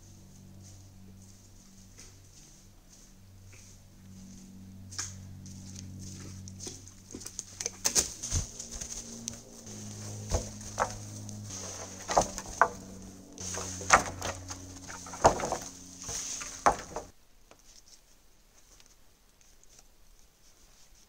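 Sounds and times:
wooden poles knocking on log pile: 7.8 - 17.1.

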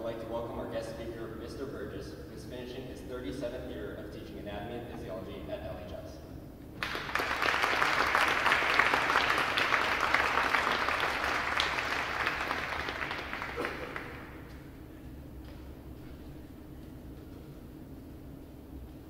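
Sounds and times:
audience applauding: 6.8 - 14.5.

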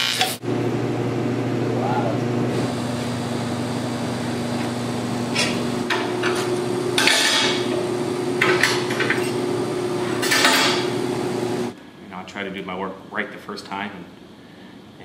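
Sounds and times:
welding arc buzzing: 0.0 - 11.8.

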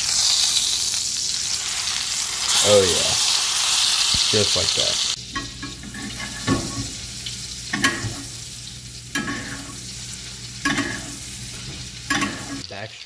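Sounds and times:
butter sizzling in skillet: 0.0 - 13.0
spoon scraping and clinking on pan: 9.2 - 9.8.

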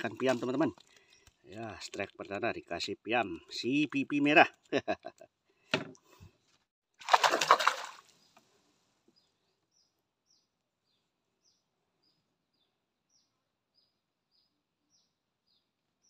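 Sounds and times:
water splash: 7.0 - 8.1.

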